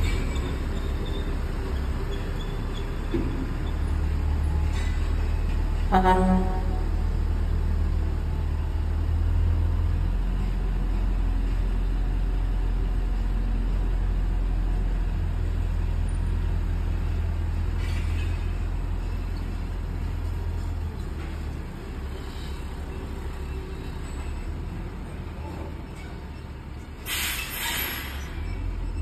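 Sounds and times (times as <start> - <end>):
truck engine rumbling: 0.0 - 29.0
short hiss: 27.0 - 28.3.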